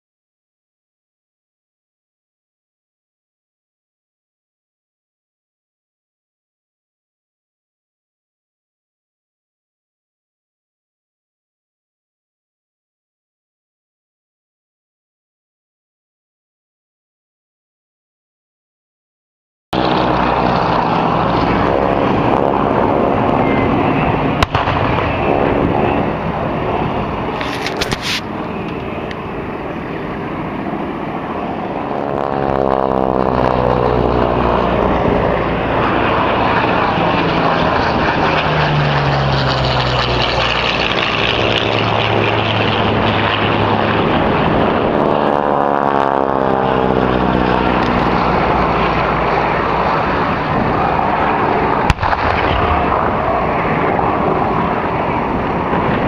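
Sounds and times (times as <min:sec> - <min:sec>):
propeller aircraft droning: 0:19.7 - 0:56.0
sharp crack: 0:24.4 - 0:25.6, 0:51.8 - 0:53.3.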